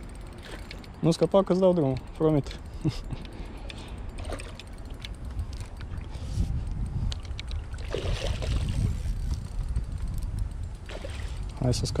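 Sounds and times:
steady low rumble: 0.0s - 12.0s
fish thrashing and splashing: 7.4s - 8.8s.

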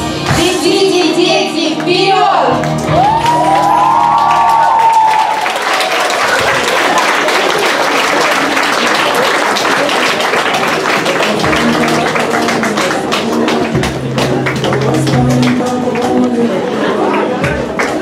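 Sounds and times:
music: 0.0s - 6.1s, 10.0s - 18.0s
audience clapping: 2.6s - 18.0s.

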